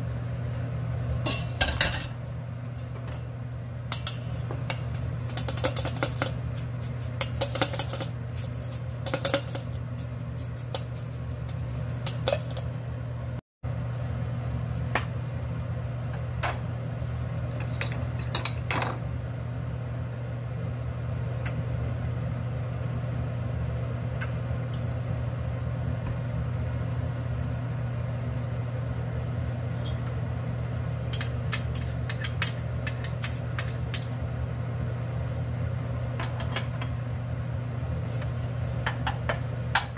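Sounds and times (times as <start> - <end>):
metal strainer rattling against bowl: 3.9 - 12.6.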